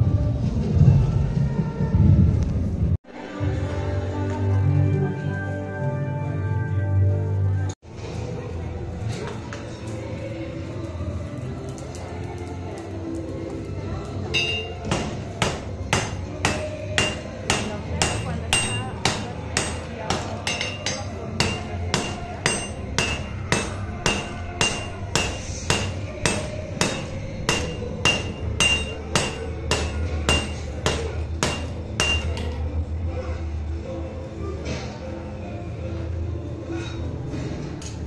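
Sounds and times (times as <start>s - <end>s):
hammer striking iron on anvil: 14.4s - 32.5s.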